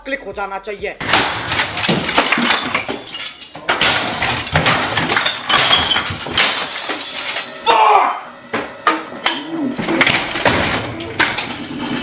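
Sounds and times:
crashing and smashing: 1.0s - 7.7s, 9.8s - 12.0s
glass breaking: 1.0s - 7.7s.

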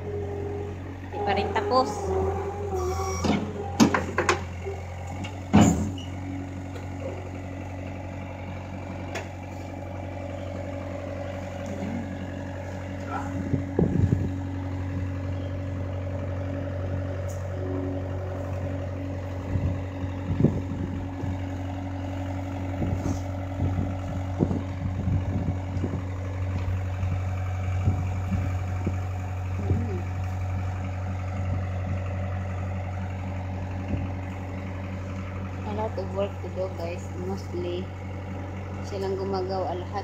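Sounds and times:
loader engine idling: 0.0s - 40.0s
knocks and clunks: 3.2s - 4.6s, 5.2s - 6.1s.

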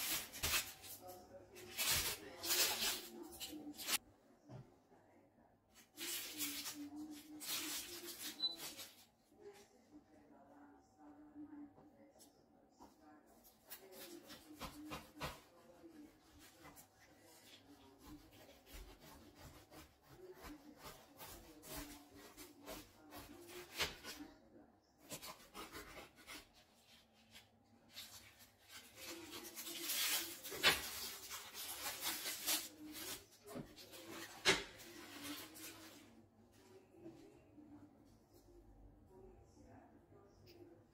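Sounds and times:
knife sawing through crisp pastry: 17.4s - 24.2s, 25.0s - 27.4s.

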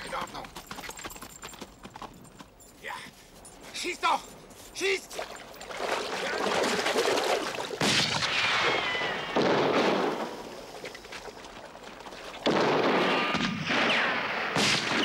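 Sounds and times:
gunshots: 7.8s - 10.5s, 12.4s - 15.0s.

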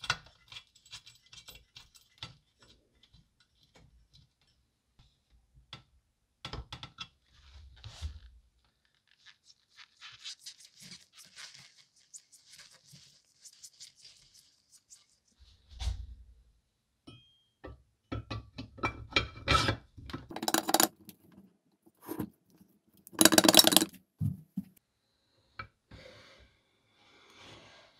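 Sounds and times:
hand tools clicking on metal: 20.3s - 21.3s, 23.1s - 23.9s.

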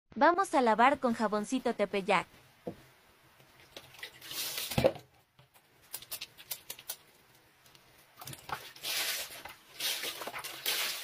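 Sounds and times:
clothes scrubbed with soap: 3.8s - 4.8s, 8.2s - 11.0s.

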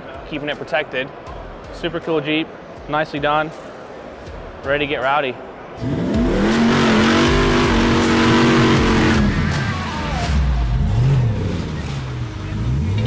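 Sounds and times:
engine revving: 5.8s - 13.0s.

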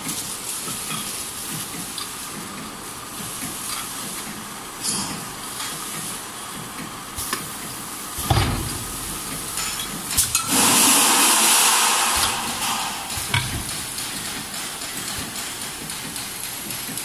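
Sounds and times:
filling machine running: 4.6s - 17.0s
loud hiss: 7.2s - 15.8s
machine clunks and clicks: 8.2s - 10.5s, 12.1s - 17.0s.

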